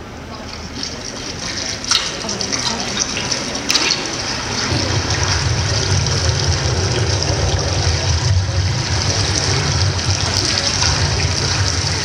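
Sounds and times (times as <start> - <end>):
rushing water over loudspeakers: 0.2 - 12.0
low rumble: 2.4 - 12.0.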